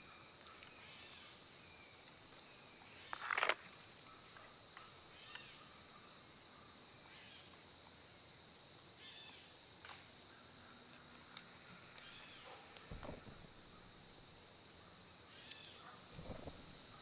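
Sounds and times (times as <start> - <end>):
faint chirps: 0.0 - 8.2, 8.9 - 17.0
insect chorus drone: 0.0 - 17.0.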